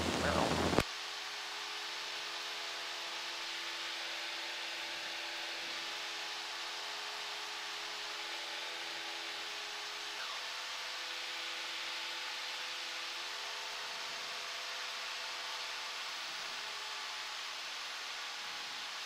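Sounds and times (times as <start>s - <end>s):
intercom hiss: 0.0s - 0.8s
faint aircraft engine drone: 0.0s - 19.0s.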